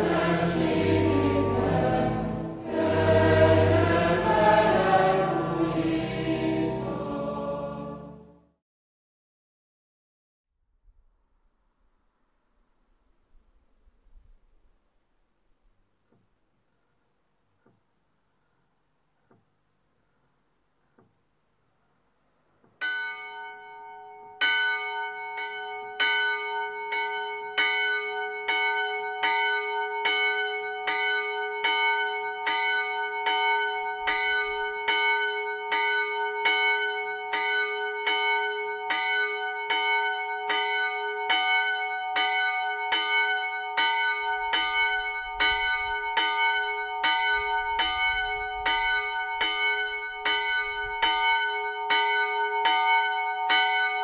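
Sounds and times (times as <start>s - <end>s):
church bell ringing: 0.0s - 7.0s, 22.8s - 54.0s.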